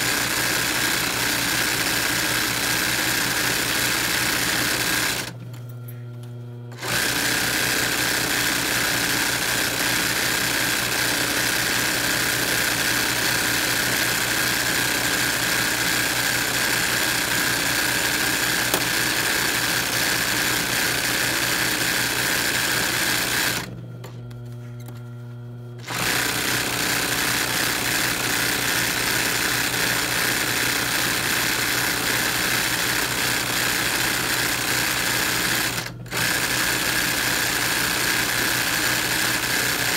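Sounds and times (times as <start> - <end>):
sewing machine hum: 0.0 - 5.4, 6.7 - 24.2, 24.8 - 39.9
sewing machine stitching: 0.0 - 5.4, 6.7 - 23.8, 25.8 - 39.9.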